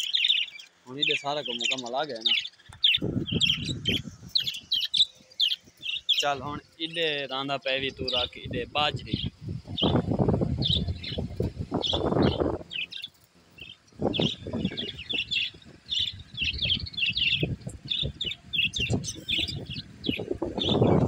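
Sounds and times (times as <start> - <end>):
budgerigars chirping: 0.0 - 21.0.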